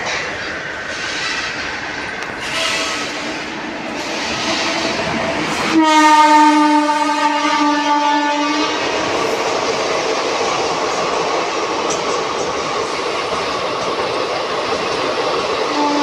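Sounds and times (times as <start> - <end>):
train running noise: 0.0 - 16.0
locomotive horn: 2.4 - 5.0, 5.6 - 8.8, 15.7 - 16.0
train wheel clatter: 8.6 - 16.0.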